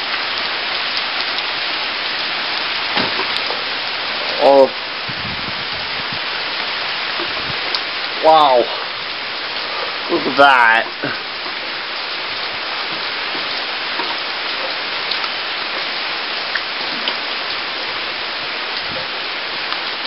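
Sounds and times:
heavy rain hissing: 0:00.0 - 0:20.0
single raindrop ticks: 0:07.2 - 0:07.9, 0:12.4 - 0:15.9.

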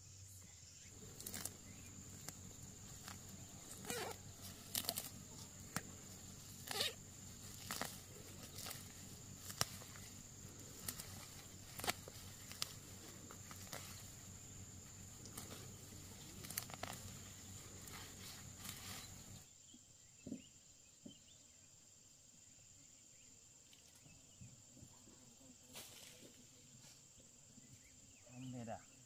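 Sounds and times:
background hiss: 0:00.0 - 0:29.0
high insect-like drone: 0:01.0 - 0:19.4.

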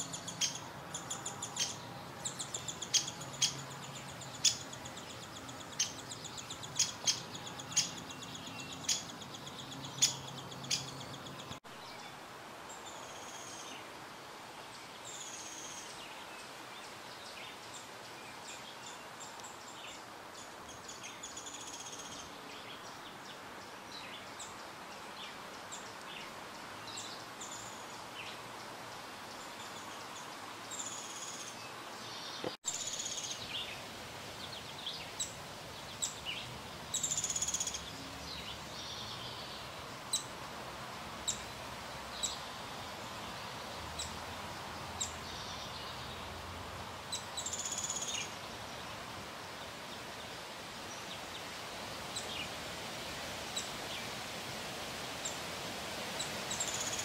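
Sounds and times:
songbirds chirping and singing: 0:00.0 - 0:12.0
steady background hiss: 0:00.0 - 0:57.0.

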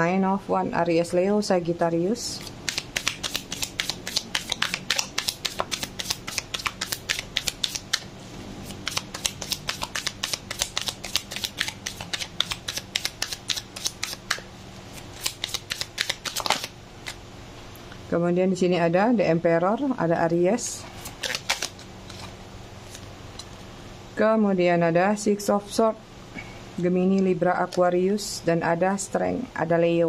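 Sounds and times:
cards being shuffled: 0:02.4 - 0:17.2, 0:21.0 - 0:23.1.

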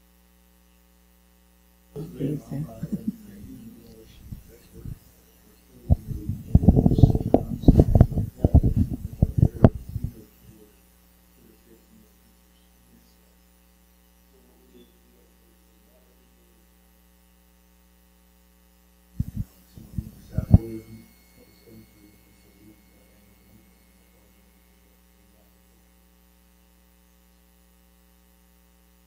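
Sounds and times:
electrical mains hum: 0:00.0 - 0:29.0
muffled low rumbling: 0:02.0 - 0:10.6, 0:19.2 - 0:25.4.

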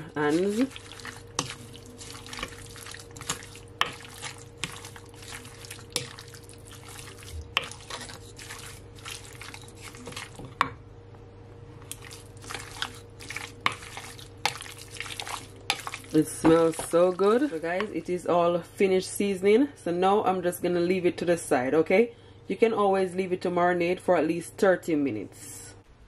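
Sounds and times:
wet squelching of chicken: 0:00.0 - 0:10.5, 0:11.9 - 0:17.8.

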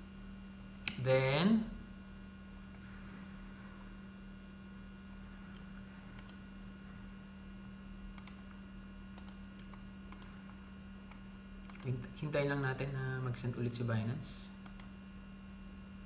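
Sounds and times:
low electrical hum: 0:00.0 - 0:16.0
computer mouse clicks: 0:06.2 - 0:06.4, 0:08.2 - 0:08.5, 0:09.2 - 0:10.4, 0:11.6 - 0:12.0, 0:14.6 - 0:14.9.

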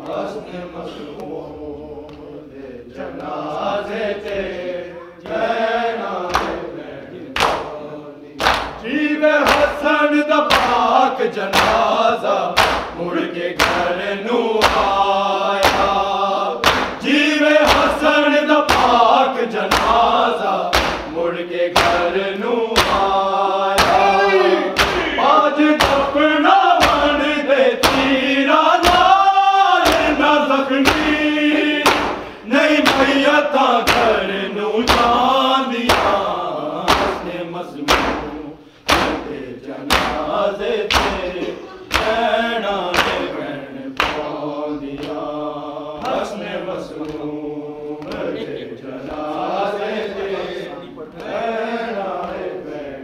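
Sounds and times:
voices chanting a lament: 0:00.0 - 0:53.0
chest-beating strikes: 0:23.8 - 0:26.1.

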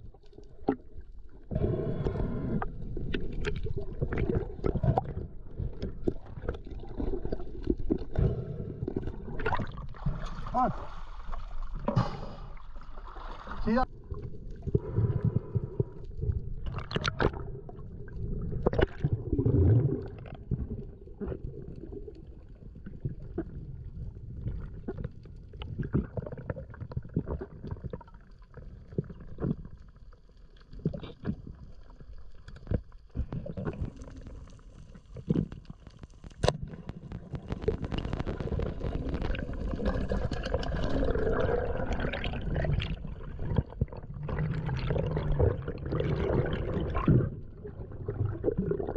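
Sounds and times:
underwater rumble of moving water: 0:00.0 - 0:48.9
sharp underwater clicks and knocks: 0:35.1 - 0:40.8.

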